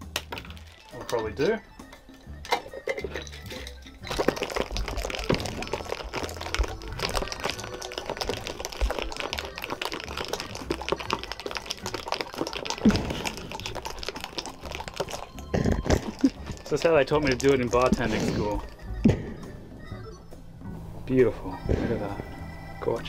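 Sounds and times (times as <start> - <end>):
ice rattling in a shaken glass jar: 0.2 - 1.6, 2.2 - 18.7.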